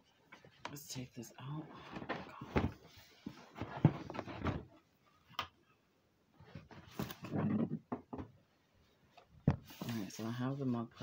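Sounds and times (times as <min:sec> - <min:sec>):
plastic wrap and cardboard rustling: 0:09.6 - 0:11.0.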